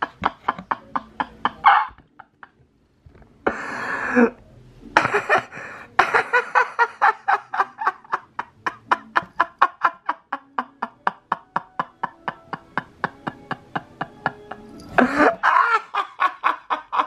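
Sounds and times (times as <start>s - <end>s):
breathy sounds: 3.4s - 4.4s, 5.0s - 6.0s, 14.8s - 15.4s
person laughing: 5.0s - 17.0s.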